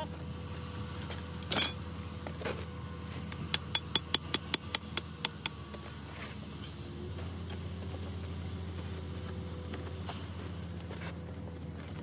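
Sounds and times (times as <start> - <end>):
hammer striking steel pin: 3.5 - 5.6.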